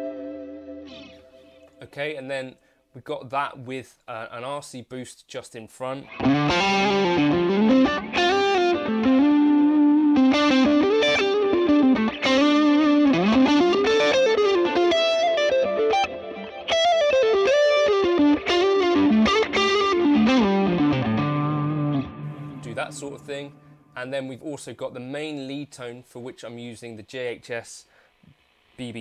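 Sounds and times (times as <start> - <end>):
overdriven electric guitar melody: 0.0 - 1.9, 6.1 - 24.0.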